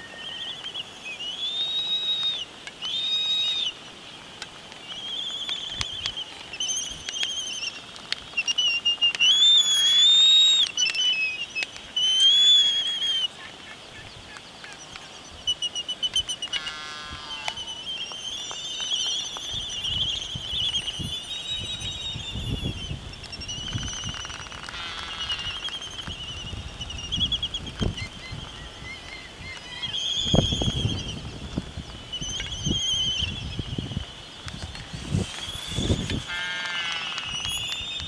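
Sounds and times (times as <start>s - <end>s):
albatross colony calling: 16.0s - 17.9s, 24.0s - 25.8s, 35.8s - 37.8s
wind buffeting microphone: 19.5s - 24.2s, 25.3s - 36.3s.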